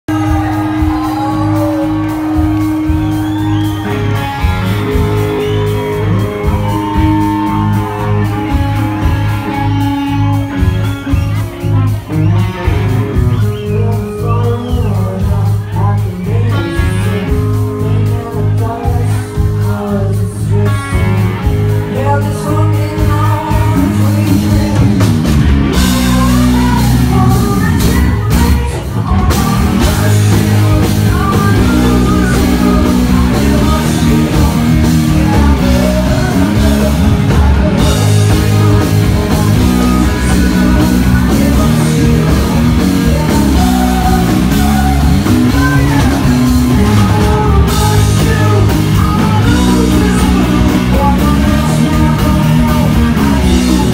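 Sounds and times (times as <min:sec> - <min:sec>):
drums: 0:00.0 - 0:53.9
electric guitar: 0:00.1 - 0:53.9
woman singing: 0:25.8 - 0:53.9.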